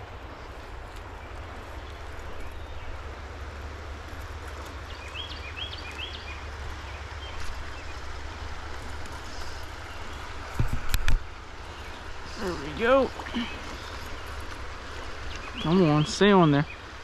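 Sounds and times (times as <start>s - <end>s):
stream water rushing: 0.0s - 17.0s
bird chirps: 4.9s - 8.0s, 15.1s - 16.8s.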